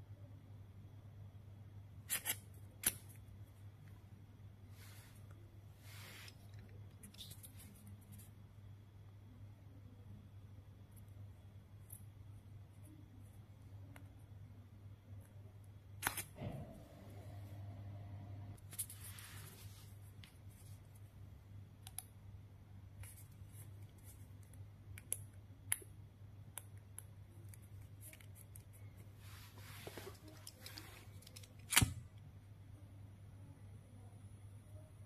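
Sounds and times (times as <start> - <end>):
steady low hum: 0.0 - 35.0
plastic rustling and scraping: 29.2 - 31.7.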